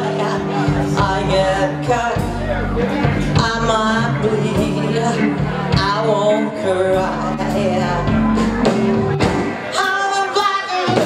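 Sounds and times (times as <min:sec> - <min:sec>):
live band playing: 0:00.0 - 0:11.0.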